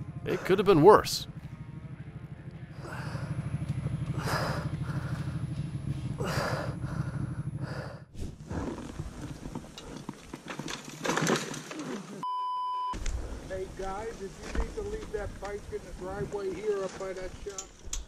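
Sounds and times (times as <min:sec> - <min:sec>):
outdoor noise: 0:00.0 - 0:18.0
motorcycle engine idling: 0:01.2 - 0:08.1
loud rushing breaths: 0:02.8 - 0:08.7.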